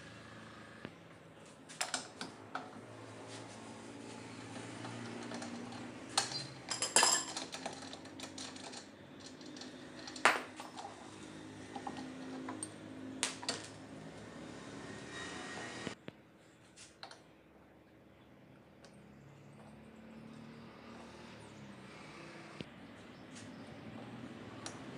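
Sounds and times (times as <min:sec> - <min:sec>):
metal clinks and knocks: 0:04.9 - 0:11.0, 0:11.7 - 0:12.8.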